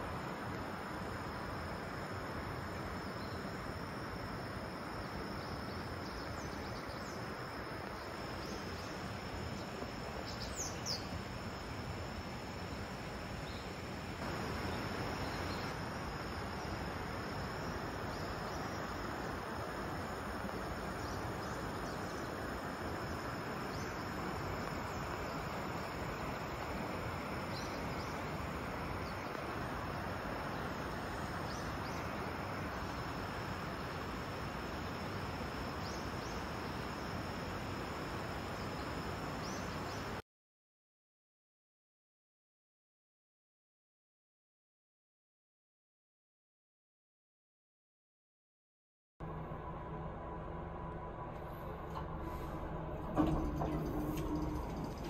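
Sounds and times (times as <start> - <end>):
high insect drone: 0.0 - 40.2, 51.4 - 55.0.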